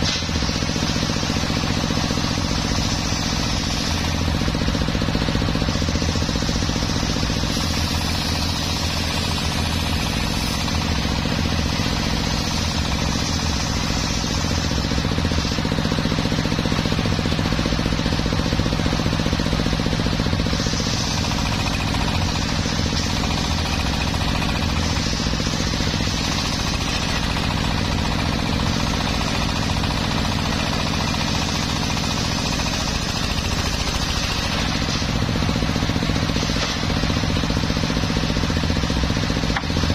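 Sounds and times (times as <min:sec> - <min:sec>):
circular saw ripping log: 0:20.5 - 0:37.6.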